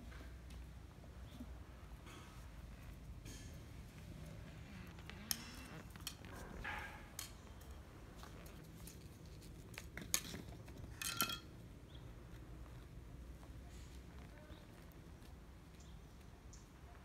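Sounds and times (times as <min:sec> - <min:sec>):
hard objects clinking on stone paving: 0:05.0 - 0:11.8.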